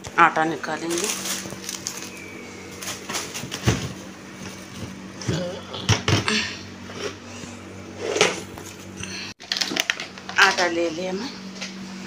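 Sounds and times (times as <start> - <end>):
steady low hum: 0.0 - 12.0
plastic bag rustling: 0.6 - 5.0.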